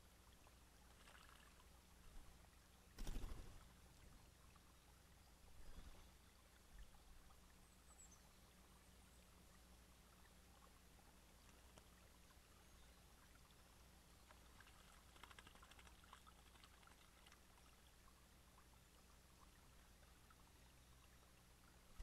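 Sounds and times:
water trickling over stones: 0.0s - 22.0s
faint splashes and clicks: 0.9s - 2.3s, 11.3s - 12.4s, 14.1s - 19.5s.

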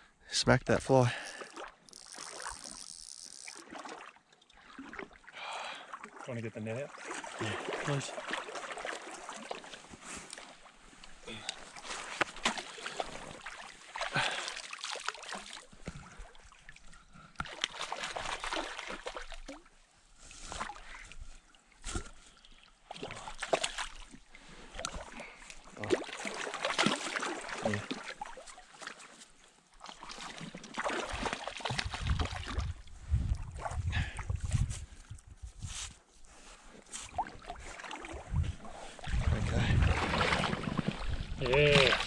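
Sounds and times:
lake water sloshing and splashing: 0.9s - 35.4s, 36.2s - 42.0s
fish splashing at water's edge: 1.2s - 5.2s, 11.7s - 16.3s, 25.9s - 29.0s.

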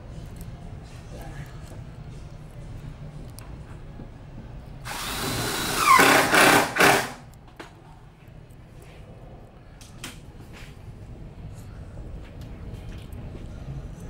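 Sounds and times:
cordless drill driving screw into wood: 4.9s - 7.2s.

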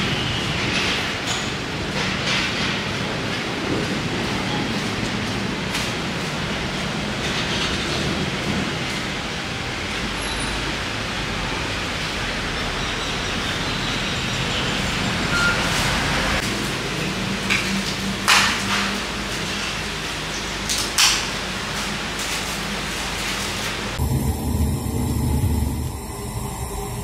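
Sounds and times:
street traffic noise: 0.0s - 27.0s
vehicle engine humming: 24.0s - 27.0s.

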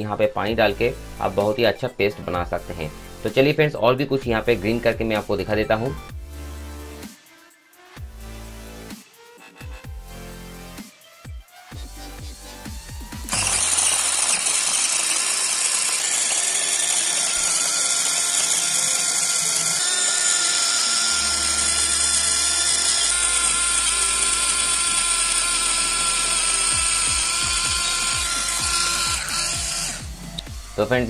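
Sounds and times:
electric food chopper whining: 13.2s - 30.8s.

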